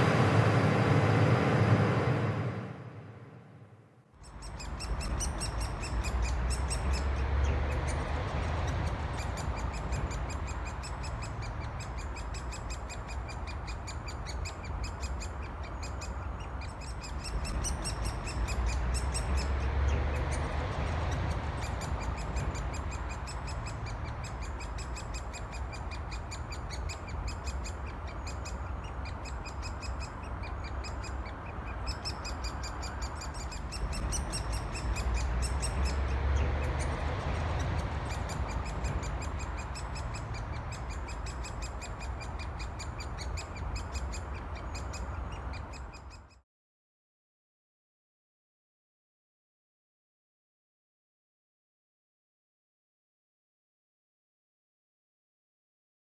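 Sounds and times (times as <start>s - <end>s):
road traffic rumble: 0.0s - 46.4s
woodpecker chicks chattering: 4.2s - 46.3s.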